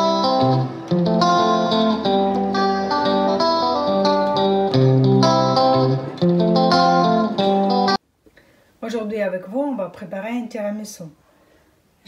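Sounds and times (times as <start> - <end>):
instrumental guitar music: 0.0 - 8.0.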